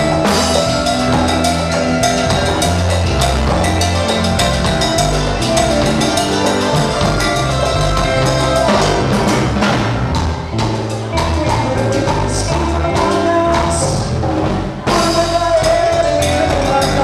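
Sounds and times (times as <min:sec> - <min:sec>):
congas: 0:00.0 - 0:17.0
drum kit beat: 0:00.0 - 0:17.0
electric bass: 0:00.0 - 0:17.0
electric guitar: 0:00.0 - 0:17.0.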